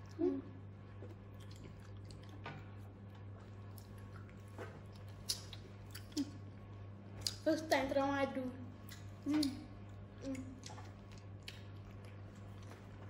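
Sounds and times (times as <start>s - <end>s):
people chewing food: 0.0s - 7.5s, 8.6s - 13.0s.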